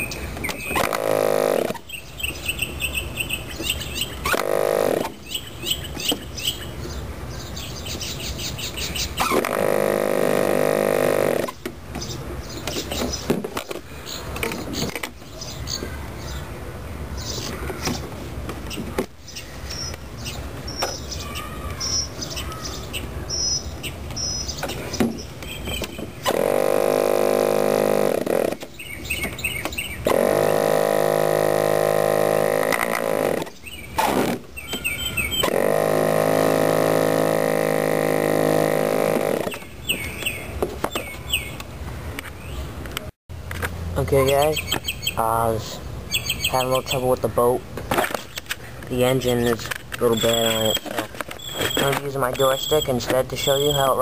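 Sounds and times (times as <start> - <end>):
small birds chirping: 0.0 - 37.9, 38.5 - 42.8, 44.0 - 54.0
electric starter whine: 0.8 - 1.8, 4.2 - 5.2, 9.2 - 11.6, 26.2 - 28.7, 30.0 - 34.4, 35.4 - 39.6.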